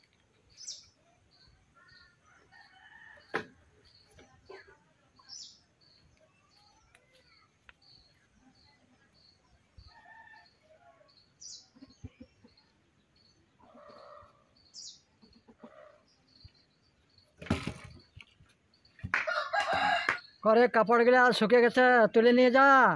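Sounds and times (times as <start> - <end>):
small bird chirping: 0.0 - 4.5, 5.1 - 19.1
firewood logs clattering on ground: 17.4 - 18.4.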